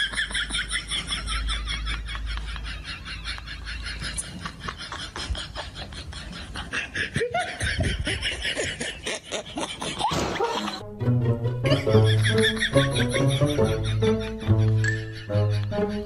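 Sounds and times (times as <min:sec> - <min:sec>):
people laughing: 0:00.0 - 0:10.8, 0:11.6 - 0:16.0.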